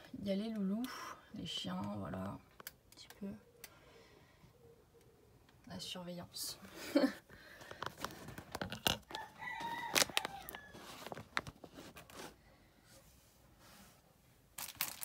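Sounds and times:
cellophane bag crinkling: 7.6 - 12.3, 14.6 - 15.0
rooster crowing: 9.1 - 11.1.

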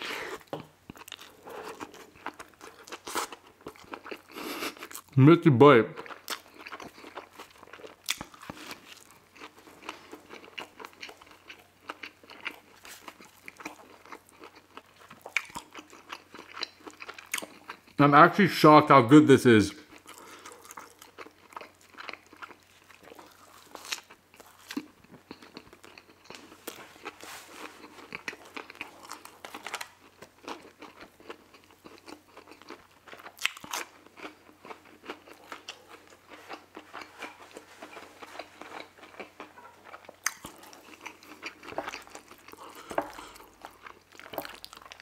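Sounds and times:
crunchy bites and chewing: 6.1 - 18.0, 19.9 - 45.0.

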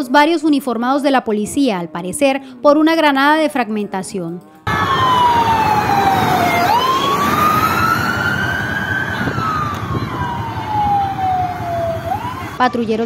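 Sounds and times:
siren wailing: 4.7 - 12.8.

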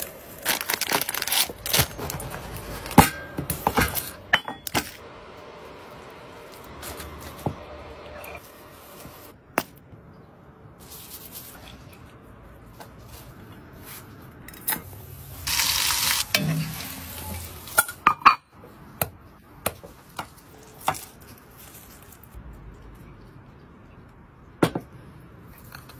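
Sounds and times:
skillet sizzling: 15.2 - 18.0.

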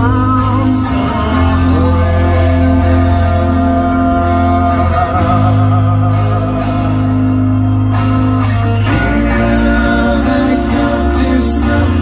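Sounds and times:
person singing: 0.0 - 7.5, 8.7 - 12.0
live rock band: 0.0 - 12.0.

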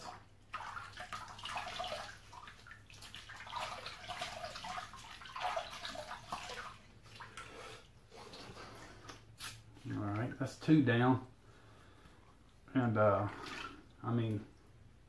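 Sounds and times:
water splashing in a sink: 0.0 - 9.4, 13.0 - 14.8.

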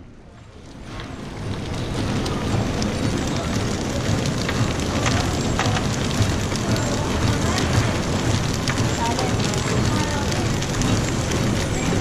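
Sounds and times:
packaging machine clatter and hiss: 0.8 - 12.0.

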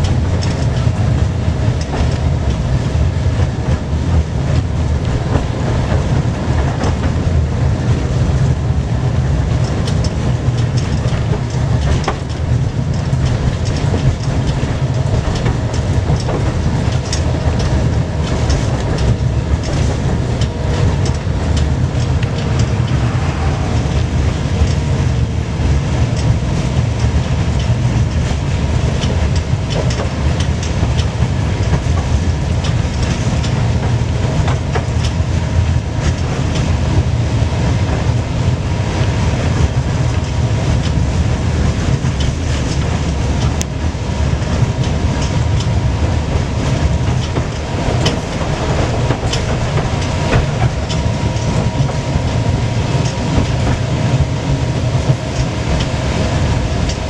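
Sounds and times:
tram rumbling on rails: 0.0 - 57.0
wheels clicking on track: 0.0 - 57.0.

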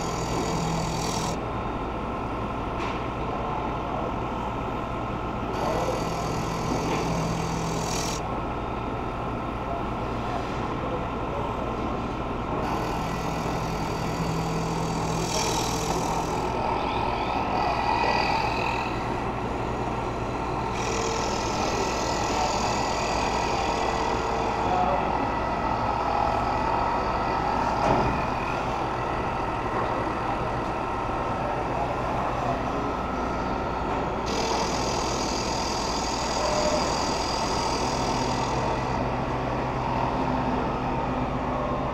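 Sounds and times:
cutter cutting wood: 0.0 - 1.4, 5.6 - 8.3, 12.6 - 19.3, 20.2 - 24.7, 34.2 - 39.1
milling machine hum: 0.0 - 41.9.

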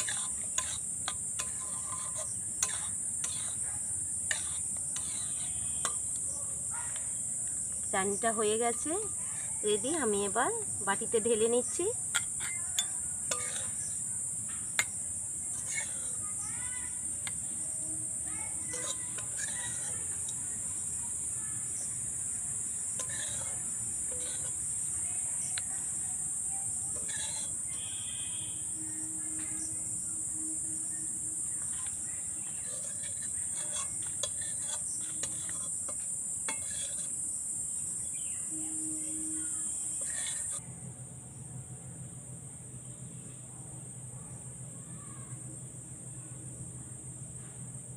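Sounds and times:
metal spatula scraping and clinking: 0.0 - 6.3, 11.7 - 16.2, 18.5 - 20.8, 22.9 - 24.8, 26.9 - 28.0, 30.4 - 37.2, 39.3 - 40.6
insect chirring: 0.0 - 47.9.

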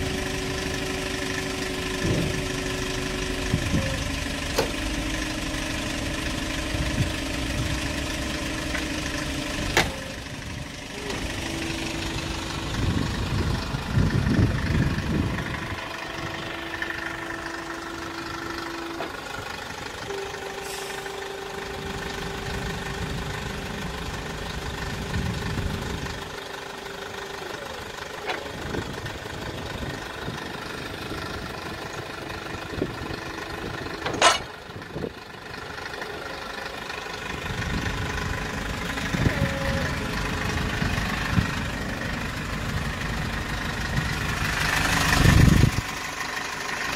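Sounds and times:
truck idling: 0.0 - 46.9
sharp metallic clank: 34.0 - 34.6.

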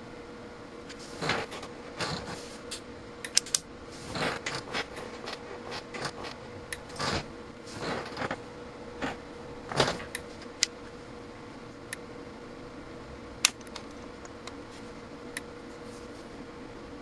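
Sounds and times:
faint steady hum: 0.0 - 17.0
electrical clicks and snaps: 0.9 - 8.4, 13.4 - 14.6.

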